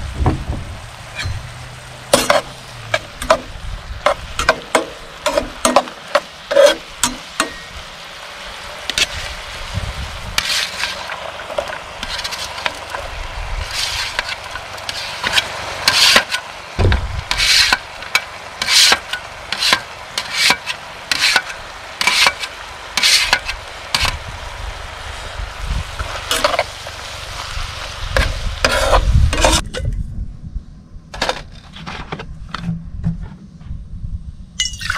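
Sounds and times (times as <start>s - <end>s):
meat sizzling in a skillet: 0.8s - 29.6s
metal spatula scraping pan: 2.1s - 7.7s, 10.4s - 16.5s, 17.3s - 24.2s, 28.2s - 29.7s
vegetables scraped off metal tray: 10.4s - 13.0s.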